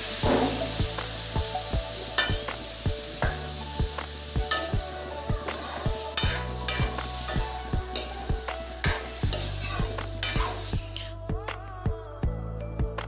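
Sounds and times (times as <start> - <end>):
food sizzling in a pan: 0.0 - 10.8
background music with steady beat: 0.0 - 13.0
metal ladle scraping a pan: 2.0 - 10.8.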